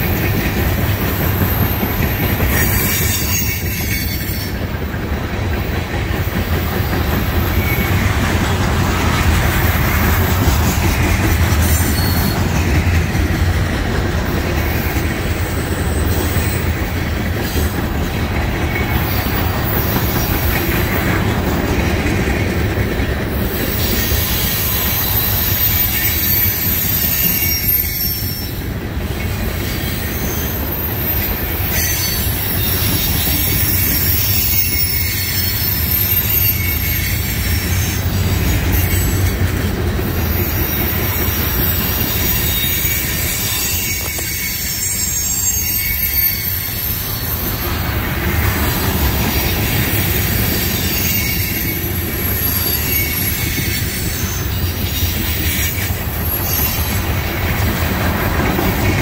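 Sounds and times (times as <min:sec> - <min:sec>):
train wheels rumbling on rails: 0:00.0 - 0:59.0
high-pitched wheel squeal: 0:01.2 - 0:04.6, 0:06.4 - 0:08.3, 0:09.7 - 0:13.0, 0:23.4 - 0:28.7, 0:29.3 - 0:39.5, 0:40.2 - 0:57.7.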